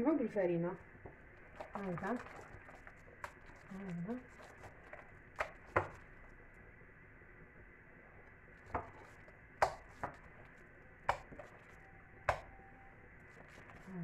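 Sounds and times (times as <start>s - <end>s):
dough mixed by hand: 1.0s - 6.8s, 8.0s - 14.0s.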